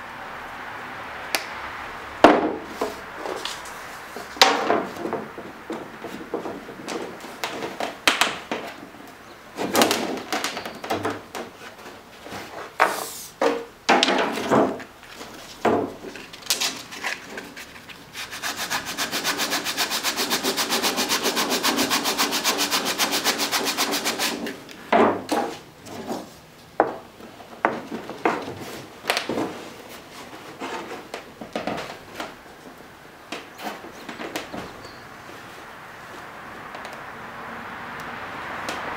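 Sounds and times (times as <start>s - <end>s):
sanding block rasping on wood: 18.2s - 24.5s.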